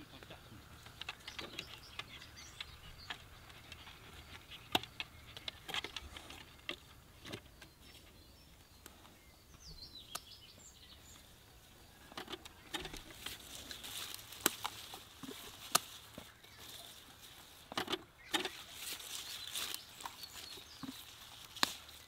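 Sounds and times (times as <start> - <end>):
bird chirps: 0.0 - 22.0.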